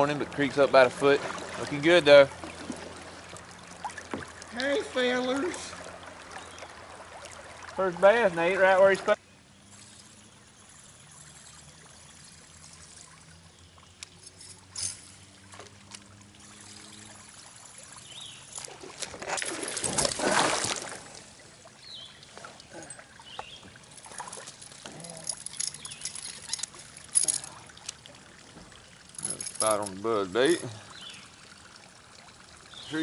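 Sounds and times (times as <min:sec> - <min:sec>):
fish splashing in water: 0:15.1 - 0:21.4.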